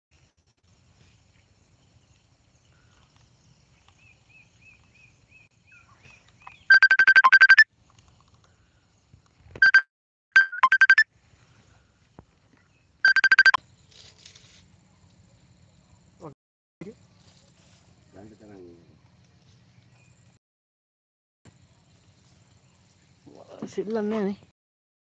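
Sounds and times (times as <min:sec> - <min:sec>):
phone ringtone trill: 0:06.7 - 0:07.6, 0:09.6 - 0:09.8, 0:10.4 - 0:11.0, 0:13.1 - 0:13.6.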